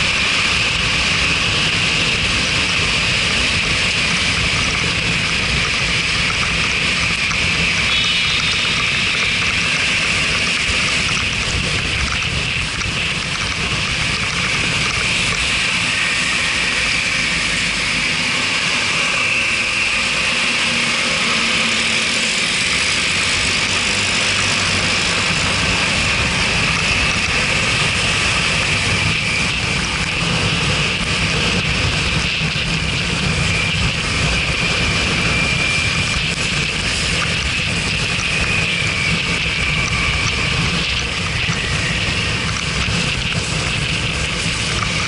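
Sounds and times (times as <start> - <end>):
road and wind noise: 0.0 - 45.0
scooter engine: 6.5 - 31.4.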